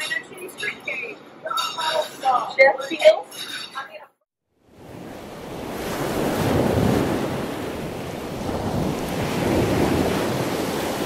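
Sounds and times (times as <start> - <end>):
waves breaking on a beach: 4.6 - 11.0.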